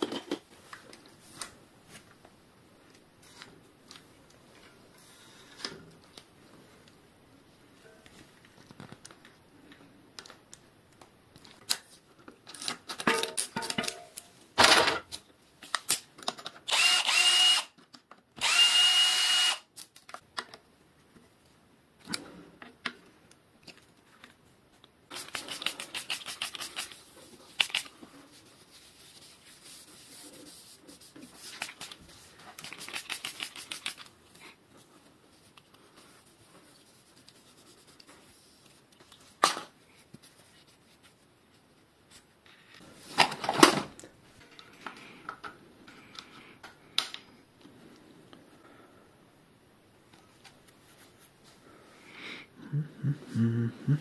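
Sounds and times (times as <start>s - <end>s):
power drill running: 16.7s - 17.7s, 18.4s - 19.6s.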